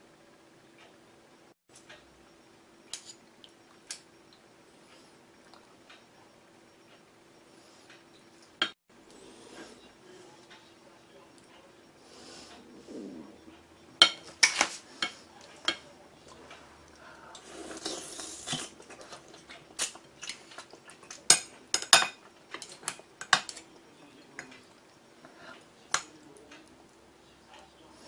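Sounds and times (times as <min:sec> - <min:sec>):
utensils clinking on porcelain: 0:18.9 - 0:24.8.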